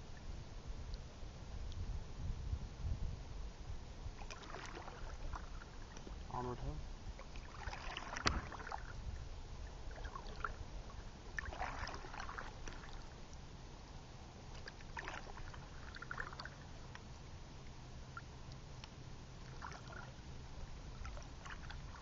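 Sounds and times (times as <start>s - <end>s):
paddle splashing in water: 4.2s - 6.2s, 7.2s - 9.0s, 9.7s - 13.2s, 14.5s - 16.7s, 19.4s - 20.2s, 20.9s - 22.0s.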